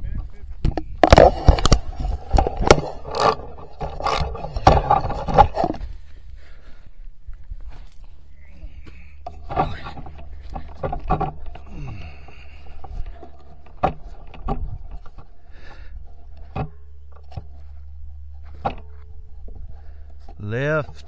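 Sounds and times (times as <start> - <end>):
steady low hum: 0.0 - 21.0
rifle handling knocks and scrapes: 0.7 - 5.9.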